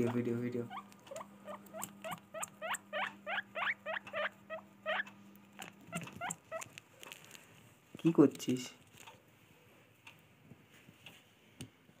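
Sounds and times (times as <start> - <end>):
guinea pig squeaking: 0.0 - 6.8.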